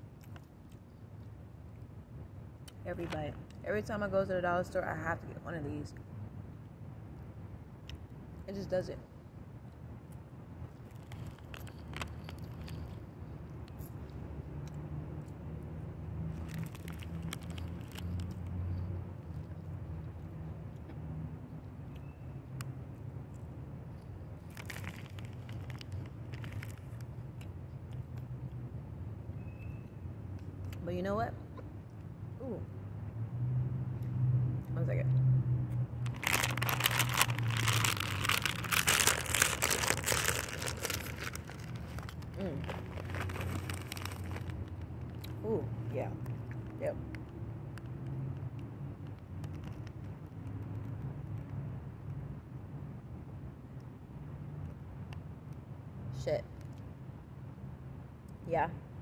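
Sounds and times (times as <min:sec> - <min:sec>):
cheese puffs crunching: 0:10.8 - 0:13.0, 0:16.3 - 0:18.5, 0:24.4 - 0:27.5, 0:36.0 - 0:45.4
snack bag rustling: 0:10.8 - 0:13.0, 0:24.5 - 0:27.0, 0:36.0 - 0:45.2
steady low rumble: 0:34.6 - 0:47.9.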